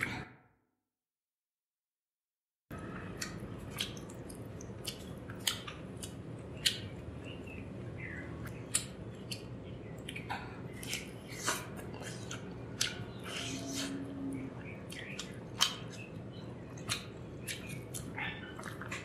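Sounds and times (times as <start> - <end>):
wet mouth chewing smacks: 3.2 - 7.0, 8.4 - 14.0, 14.9 - 16.1, 16.8 - 19.0.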